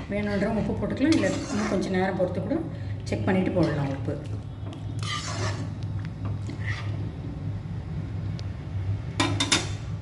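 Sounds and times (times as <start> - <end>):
steady low hum: 0.0 - 10.0
spoon scraping metal pan: 0.2 - 1.9, 5.0 - 5.8.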